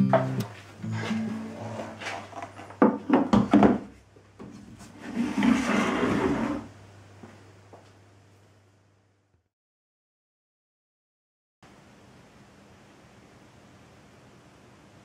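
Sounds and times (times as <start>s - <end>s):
wood sliding on workbench: 1.0s - 3.1s, 4.8s - 6.7s
wood knocking on workbench: 2.8s - 3.9s.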